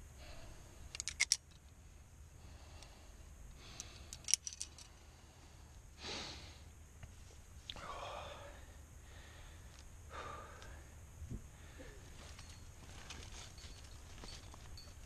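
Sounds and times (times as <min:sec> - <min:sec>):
metal climbing hardware clinking: 0:00.9 - 0:01.7, 0:03.8 - 0:04.9, 0:12.2 - 0:15.0
breathy rush of noise: 0:01.8 - 0:13.5.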